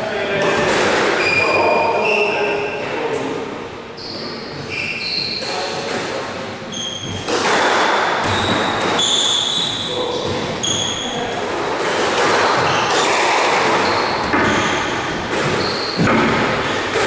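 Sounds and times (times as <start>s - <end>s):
shoes squeaking on wooden floor: 4.0s - 5.8s, 6.7s - 7.3s, 8.2s - 11.3s, 12.4s - 16.9s
ball bouncing: 11.8s - 17.0s.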